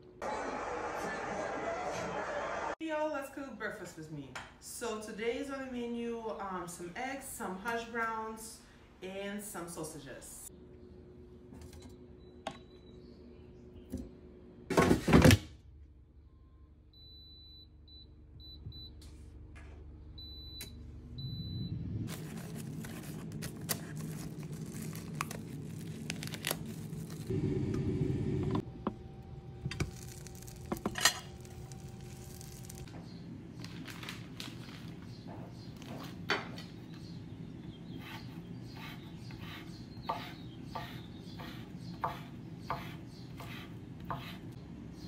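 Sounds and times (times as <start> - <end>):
plastic packaging crinkling and tearing: 22.1 - 27.3, 29.7 - 32.9, 33.6 - 35.0.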